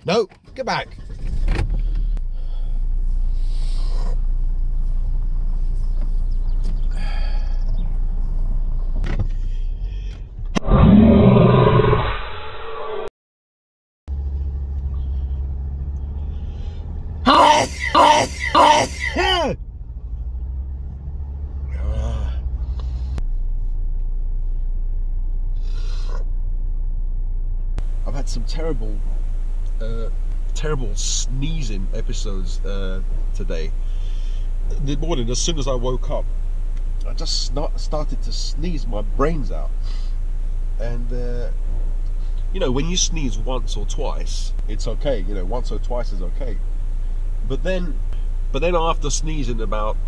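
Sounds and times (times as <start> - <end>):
car cabin rumble: 0.0 - 10.6
car engine and road rumble: 0.0 - 10.9, 14.1 - 50.0
hissing breath: 1.9 - 4.2, 25.6 - 26.2, 33.8 - 34.5, 39.8 - 40.2
breathy vocal sound: 6.9 - 7.7, 16.4 - 19.5, 21.7 - 23.1.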